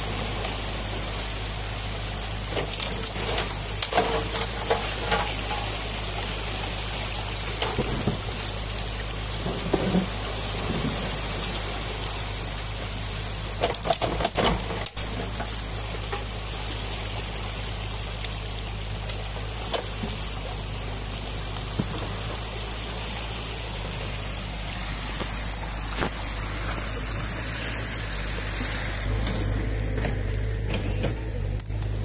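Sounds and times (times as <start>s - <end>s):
excavator engine running: 0.0s - 32.0s
muddy water rushing: 0.0s - 32.0s.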